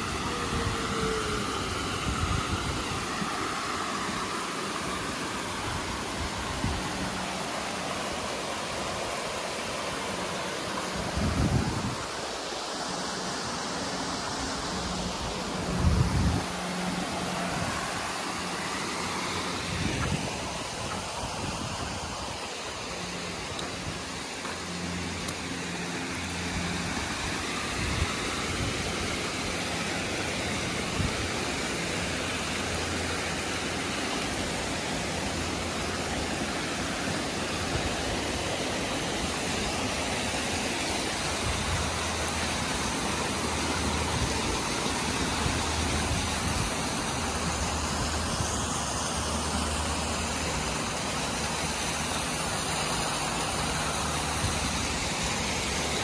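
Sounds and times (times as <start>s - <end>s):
small waterfall and rocky creek: 0.0s - 56.0s.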